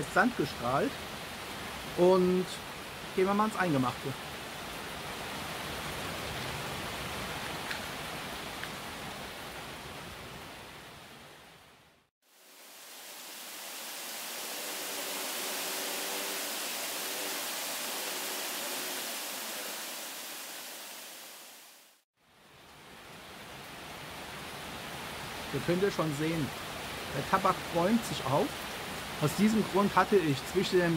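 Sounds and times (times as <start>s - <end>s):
heavy rain hissing: 12.3s - 22.0s, 23.3s - 30.9s.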